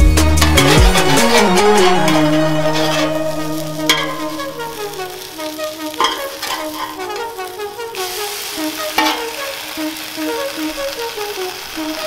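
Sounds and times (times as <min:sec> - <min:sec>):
instrumental background music: 0:00.0 - 0:12.0
omelet sizzling on griddle: 0:00.0 - 0:12.0
metal spatula scraping and tapping: 0:00.4 - 0:03.2, 0:03.8 - 0:05.0, 0:06.0 - 0:07.4, 0:09.0 - 0:09.4.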